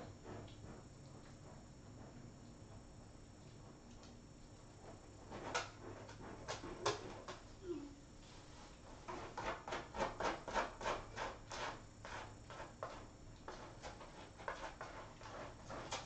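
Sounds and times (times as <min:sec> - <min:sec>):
kitten scratching in litter: 0:04.6 - 0:07.5, 0:08.4 - 0:16.0.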